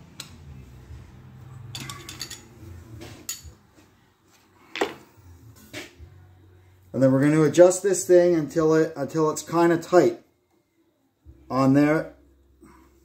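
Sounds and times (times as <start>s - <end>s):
metallic clinks of tools: 1.7s - 2.5s.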